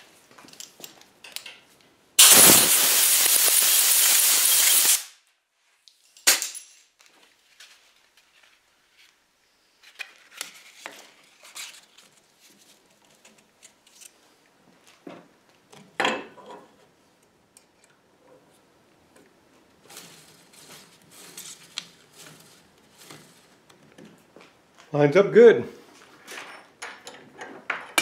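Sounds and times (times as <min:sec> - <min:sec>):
rustling: 0:19.5 - 0:24.9.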